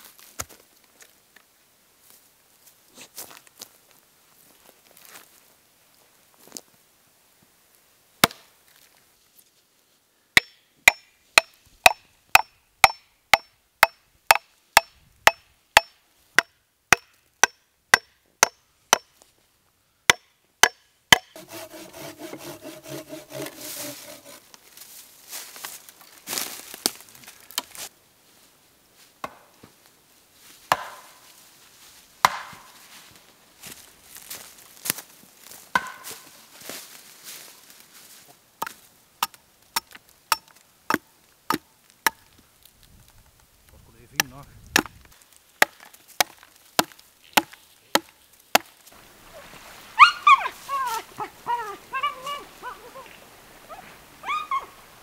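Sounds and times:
axe chopping log: 8.2 - 8.5, 10.4 - 19.1, 20.1 - 24.4, 30.7 - 31.2, 32.2 - 32.7, 35.7 - 36.2, 38.6 - 42.3, 44.2 - 48.7
saw cutting wood: 21.2 - 24.4.

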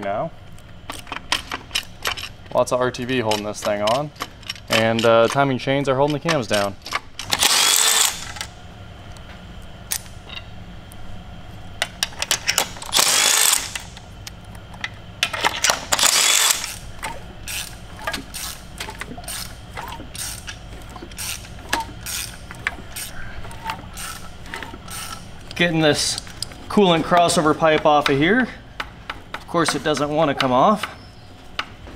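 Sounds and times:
impact driver hammering: 7.2 - 8.4, 12.8 - 13.9, 15.9 - 16.8.

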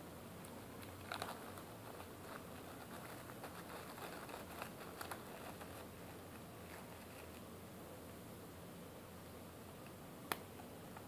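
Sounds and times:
plastic wrapper crinkling: 0.4 - 7.5.

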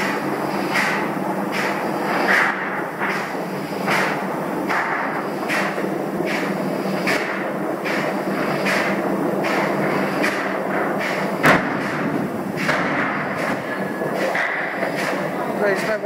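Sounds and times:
pulsing machinery drone: 0.0 - 16.0
sharp knock: 11.4 - 13.6.

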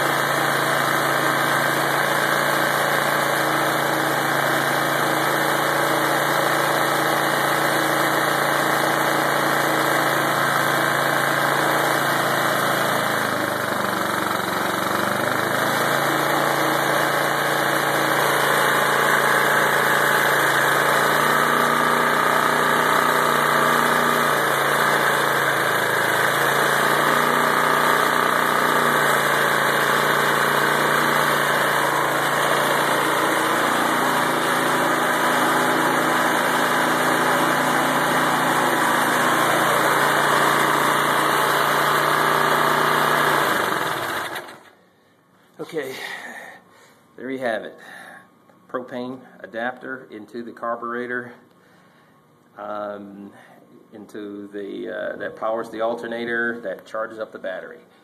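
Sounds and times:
lawnmower engine running: 0.0 - 45.0.

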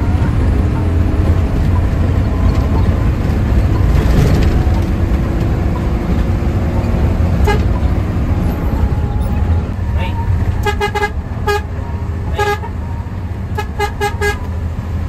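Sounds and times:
bus diesel engine running hard: 0.0 - 15.0
bus horn: 0.0 - 15.0.

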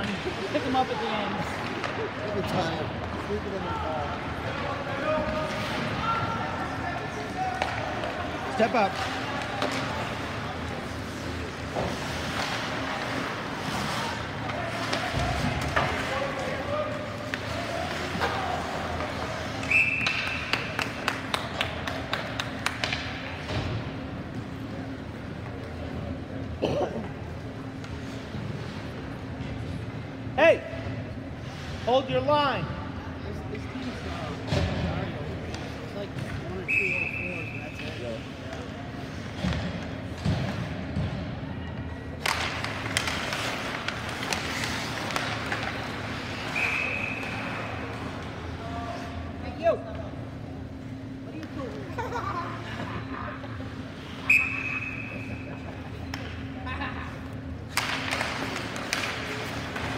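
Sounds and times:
referee whistle blast: 54.2 - 55.3.

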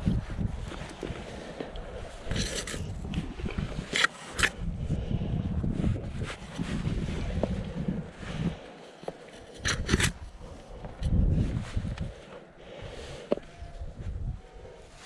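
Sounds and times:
wind rumble on microphone: 0.0 - 8.7, 9.4 - 15.0
hands and shoes scraping on rock: 0.6 - 3.0.

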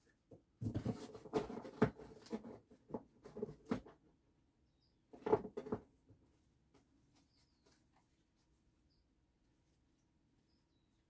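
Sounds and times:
rustling of items: 0.2 - 4.0.

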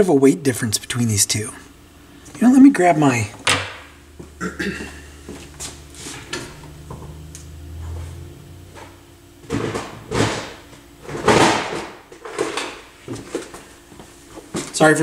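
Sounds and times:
low hum: 0.4 - 11.0.

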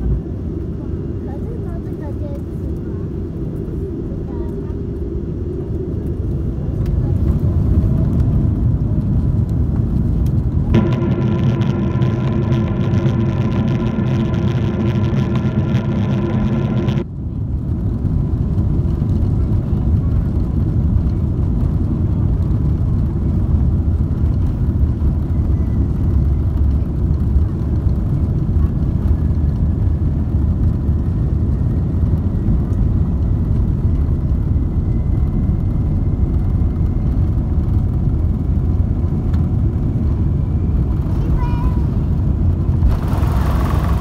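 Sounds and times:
aircraft engines low rumble: 0.0 - 44.0
faint high whine: 10.7 - 17.1.

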